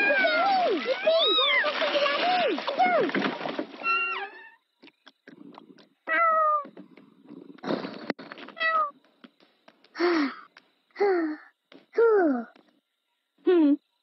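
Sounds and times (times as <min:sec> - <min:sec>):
cartoon kitten meowing: 0:06.1 - 0:06.7.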